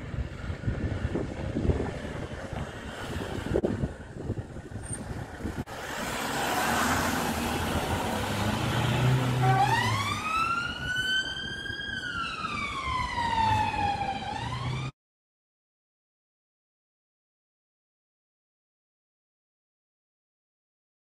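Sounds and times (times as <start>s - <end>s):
police siren wailing: 8.1s - 15.0s.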